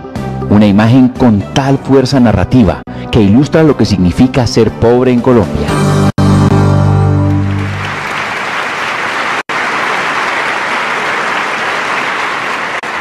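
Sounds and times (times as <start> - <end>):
music chord: 5.8 - 8.2
audience applauding: 7.3 - 13.0.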